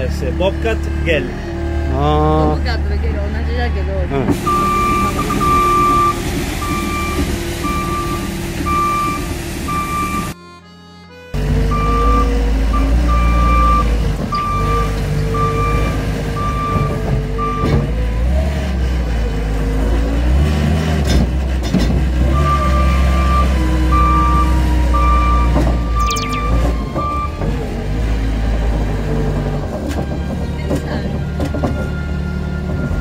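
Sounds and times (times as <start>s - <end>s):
loader engine running: 2.6s - 20.0s
reversing alarm beeping: 4.4s - 10.4s, 11.7s - 17.6s, 22.4s - 27.4s.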